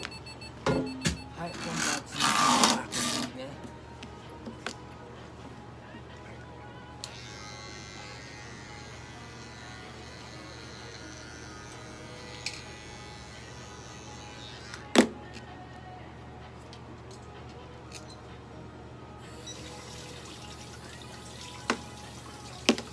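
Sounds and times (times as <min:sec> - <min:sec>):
pet hair clipper running: 0:01.8 - 0:03.3, 0:07.0 - 0:14.9.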